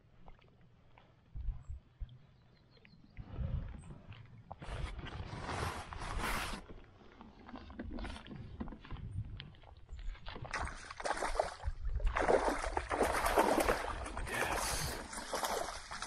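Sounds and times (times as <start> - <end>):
fish thrashing water splashes: 10.5 - 16.0.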